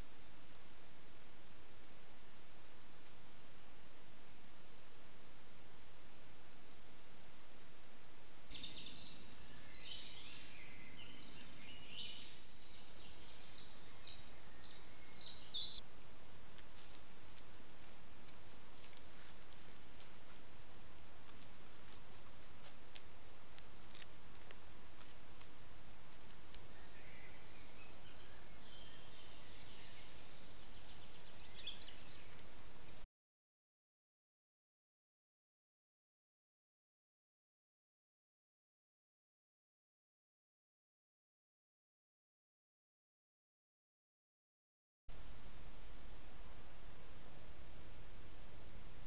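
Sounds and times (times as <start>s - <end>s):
microphone hiss: 0.0s - 33.0s, 45.1s - 49.0s
songbirds singing: 8.4s - 15.9s, 26.0s - 33.0s.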